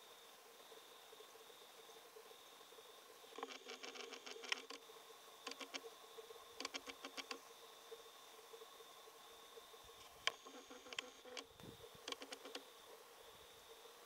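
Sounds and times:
rapid light clicking: 0:05.5 - 0:05.8, 0:06.6 - 0:07.4, 0:10.2 - 0:12.6.

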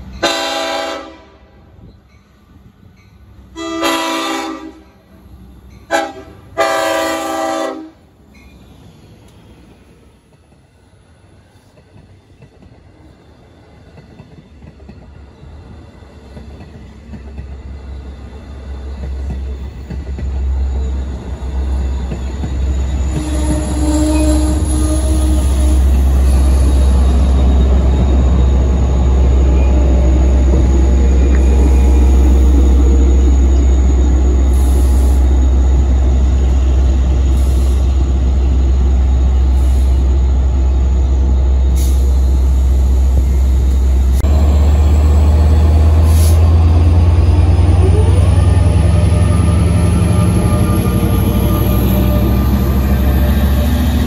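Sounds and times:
train rumbling past: 0:00.0 - 0:54.0
train horn blasts: 0:00.2 - 0:01.7, 0:03.5 - 0:05.0, 0:05.9 - 0:08.1, 0:23.1 - 0:26.4.

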